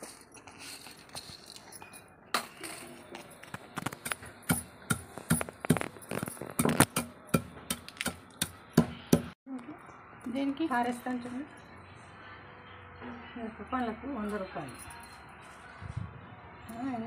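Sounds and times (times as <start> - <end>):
pestle pounding in stone mortar: 3.8 - 9.3.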